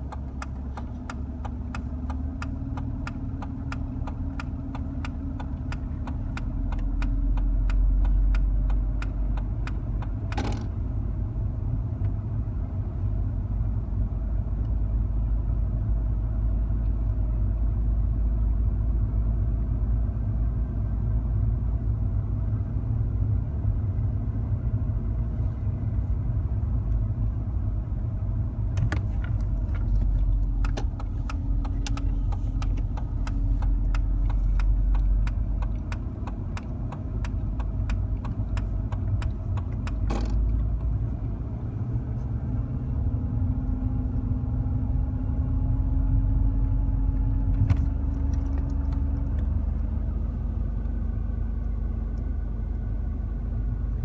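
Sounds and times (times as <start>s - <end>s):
car engine and tyres rumbling: 0.0s - 54.0s
sharp clicks and crackles: 28.8s - 40.9s.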